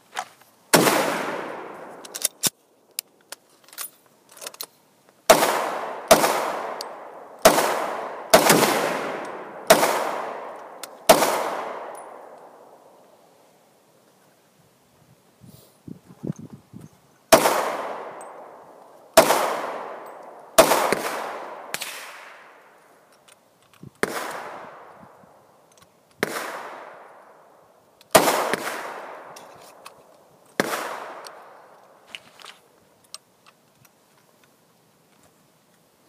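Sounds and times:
pistol shots with echo: 0.7 - 2.1, 5.3 - 12.8, 17.3 - 22.6, 24.0 - 24.9, 26.2 - 27.1, 28.1 - 29.4, 30.6 - 31.5.

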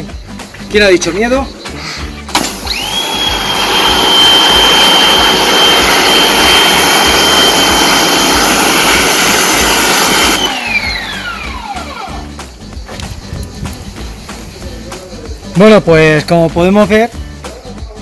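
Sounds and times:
pressure washer motor whine: 2.3 - 12.5.

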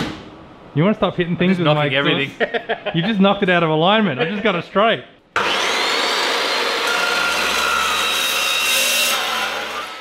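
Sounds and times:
chop saw grinding through pipe: 5.4 - 10.0.

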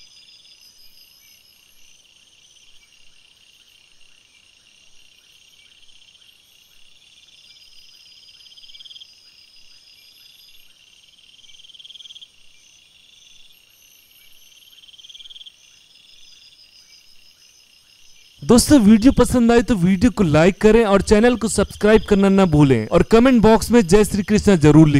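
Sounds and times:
crickets and insects trilling: 6.0 - 24.9.

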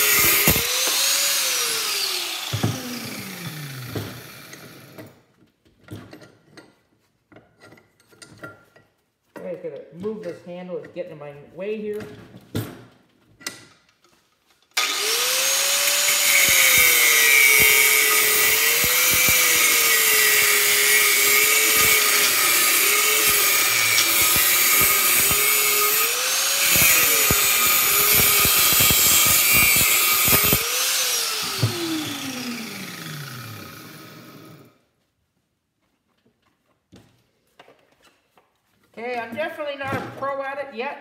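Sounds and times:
angle grinder cutting metal: 0.0 - 5.0, 14.8 - 34.7
grinder winding down whine: 0.0 - 5.0, 14.8 - 34.7.

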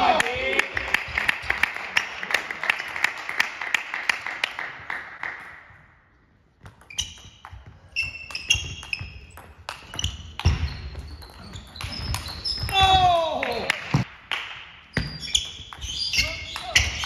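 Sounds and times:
shoes squeaking on floor: 6.7 - 13.0, 14.9 - 17.0.

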